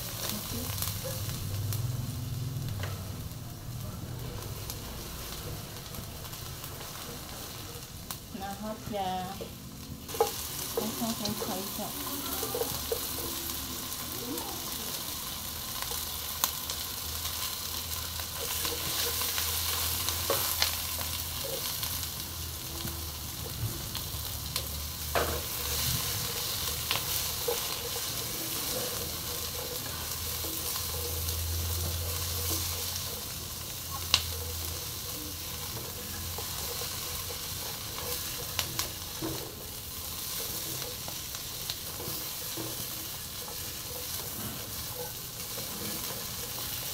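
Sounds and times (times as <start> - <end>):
shallots sizzling in oil: 0.0 - 46.9
spatula scraping pan: 25.1 - 46.9.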